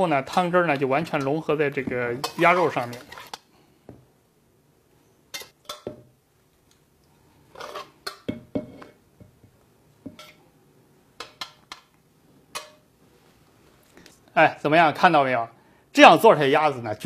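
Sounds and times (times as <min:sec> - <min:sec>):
metal spatula scraping a pot: 0:02.2 - 0:03.5, 0:07.5 - 0:09.0, 0:10.1 - 0:10.4.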